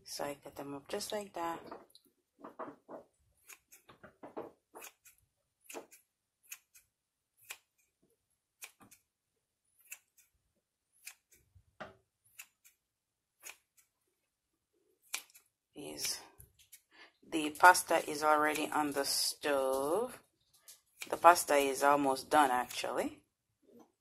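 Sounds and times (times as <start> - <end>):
scissors snipping through raw meat: 15.1 - 15.4.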